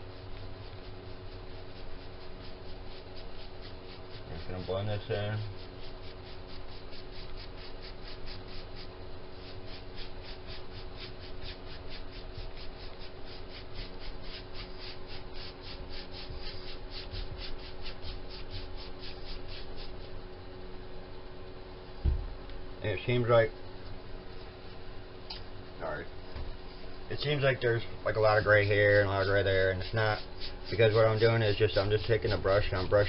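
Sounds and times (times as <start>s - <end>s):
steady low hum: 0.0s - 33.0s
paintbrush scrubbing wood: 0.1s - 20.1s, 27.2s - 33.0s.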